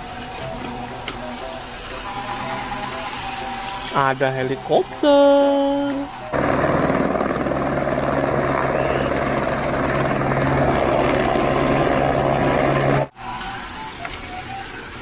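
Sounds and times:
helicopter rotor and engine: 0:04.9 - 0:13.1.

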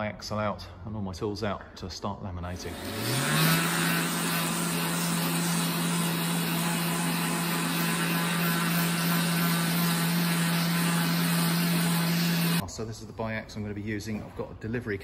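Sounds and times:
electric orbital sander running: 0:02.6 - 0:12.6.

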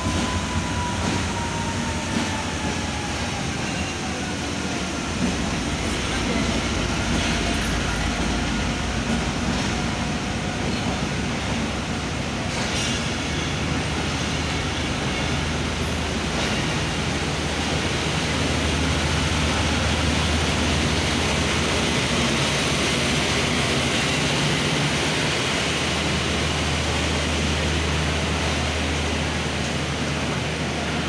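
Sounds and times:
train wheels rumbling and hissing: 0:00.0 - 0:31.0.

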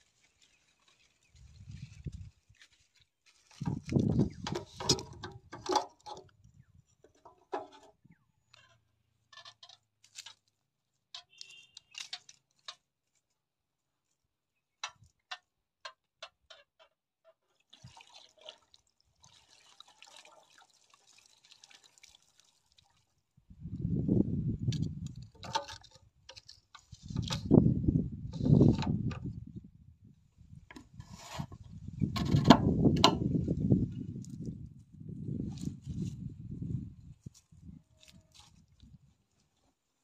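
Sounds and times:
liquid pouring from jug: 0:17.7 - 0:23.0.

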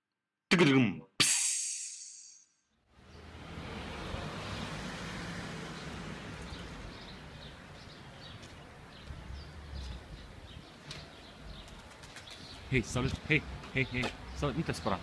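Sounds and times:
city traffic rumble: 0:02.9 - 0:15.0
small birds chirping: 0:05.7 - 0:15.0.

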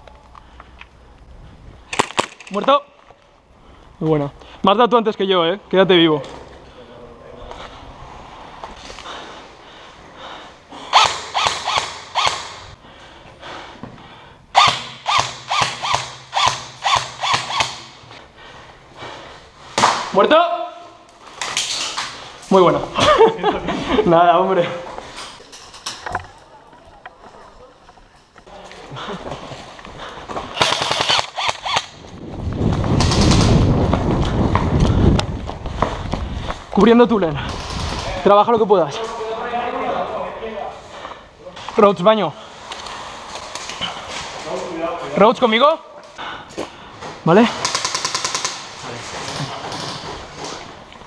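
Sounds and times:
airsoft rifle shots: 0:10.9 - 0:12.7, 0:14.6 - 0:18.0, 0:30.6 - 0:32.0, 0:47.6 - 0:48.8.

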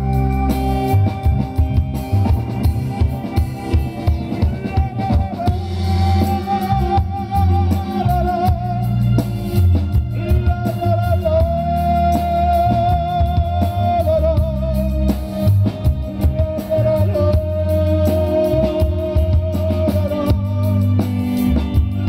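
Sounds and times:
drum kit: 0:00.0 - 0:22.0
electric bass: 0:00.0 - 0:22.0
keyboards: 0:00.0 - 0:22.0
man singing: 0:00.0 - 0:22.0.

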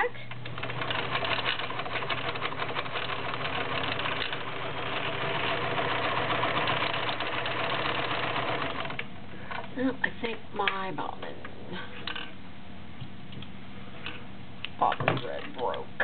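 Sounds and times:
sewing machine running: 0:00.4 - 0:09.7.

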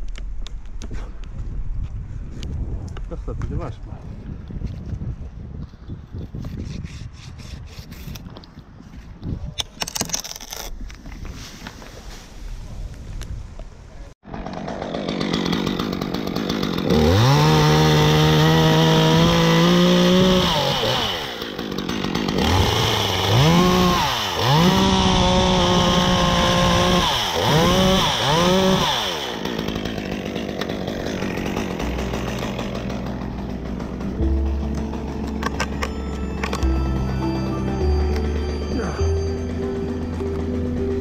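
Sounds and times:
chainsaw cutting wood: 0:14.2 - 0:41.0
chainsaw idling: 0:14.2 - 0:41.0
chainsaw throttle blips: 0:14.3 - 0:37.1.

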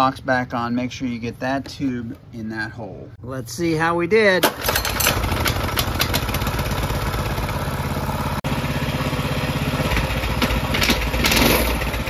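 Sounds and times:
small engine idling: 0:04.5 - 0:12.0.

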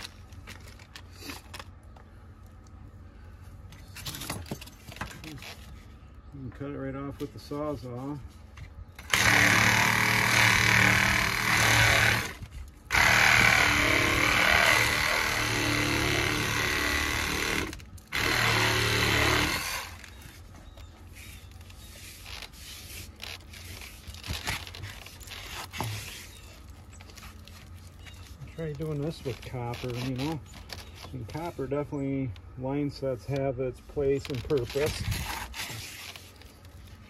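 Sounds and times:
handling clicks and rustles: 0:00.0 - 0:02.8, 0:20.0 - 0:32.5, 0:33.2 - 0:37.0
reciprocating saw cutting: 0:09.0 - 0:20.1.

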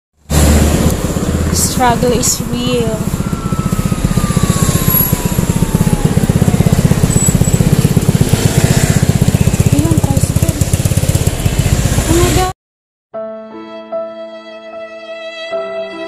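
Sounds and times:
motor scooter engine running: 0:00.3 - 0:12.5.

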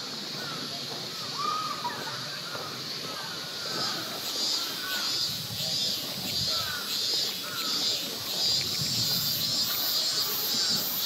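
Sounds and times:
cicadas pulsing: 0:00.0 - 0:11.0
birds calling: 0:01.3 - 0:11.0.

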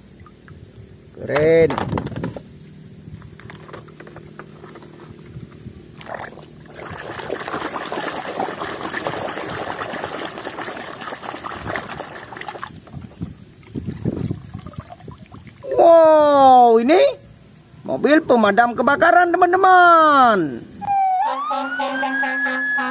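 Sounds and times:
faint steady hum: 0:00.0 - 0:08.8, 0:09.8 - 0:21.0
water splashing and sloshing: 0:05.9 - 0:15.8.

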